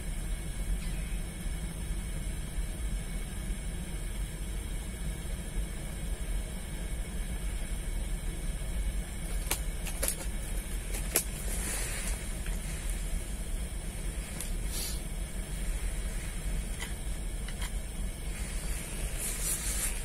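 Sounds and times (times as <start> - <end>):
low outdoor rumble: 0.0 - 20.0
brief hiss: 14.7 - 15.0.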